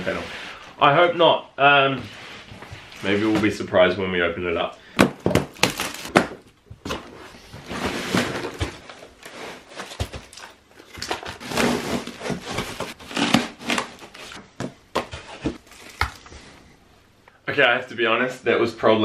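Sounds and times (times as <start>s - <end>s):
packaging rustling and crinkling: 5.2s - 14.4s, 15.0s - 16.5s.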